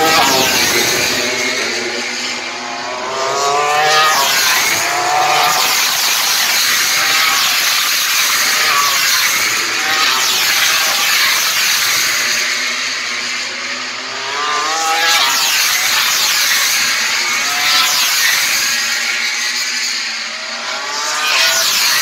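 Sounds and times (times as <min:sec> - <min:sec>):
racing motorcycles passing at full throttle: 0:00.0 - 0:22.0.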